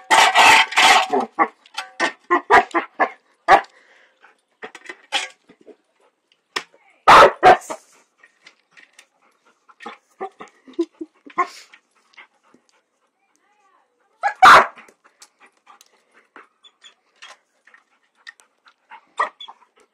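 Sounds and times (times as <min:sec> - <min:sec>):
puppy barking: 0:07.1 - 0:07.7, 0:14.2 - 0:14.8.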